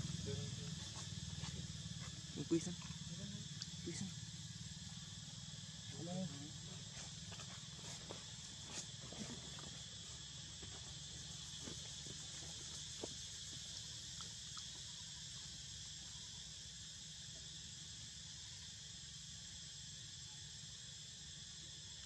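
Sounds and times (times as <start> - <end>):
insects chorus: 0.0 - 22.0.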